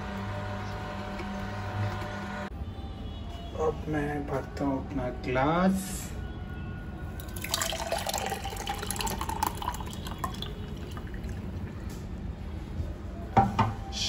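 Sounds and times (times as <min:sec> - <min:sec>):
juice pouring into glass: 0:07.2 - 0:11.7.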